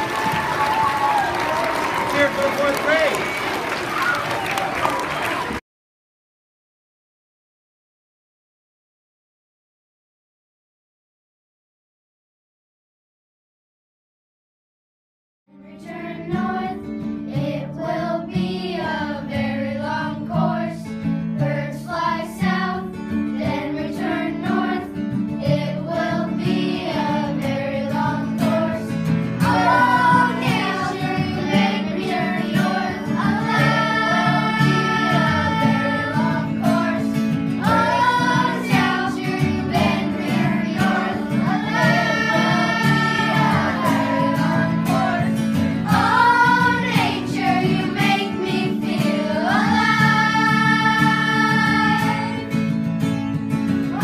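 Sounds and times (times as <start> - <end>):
children singing together: 15.7 - 52.6.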